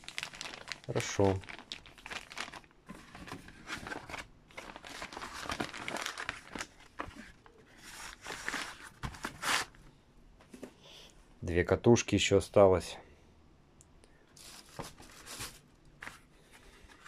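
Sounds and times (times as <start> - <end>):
plastic bag crinkling: 0.0 - 9.0
cardboard boxes rustling: 2.0 - 9.8, 14.4 - 17.0.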